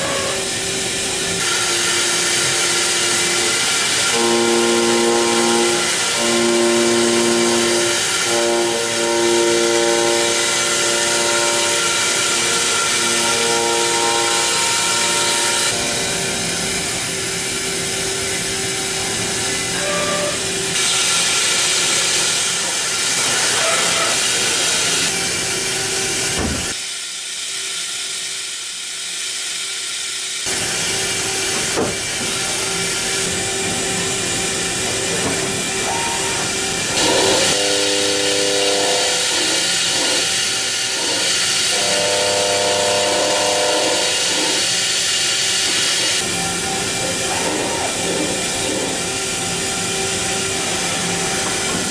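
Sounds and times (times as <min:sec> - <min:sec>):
pitched cutting whine: 0:30.9 - 0:51.9.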